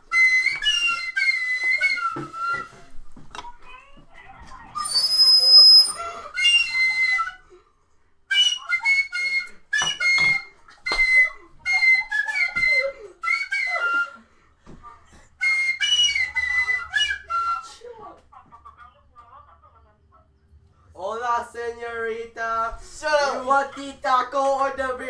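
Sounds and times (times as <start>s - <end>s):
shrill wind instrument melody: 0.0s - 2.8s, 4.8s - 7.4s, 8.3s - 14.2s, 15.4s - 17.7s.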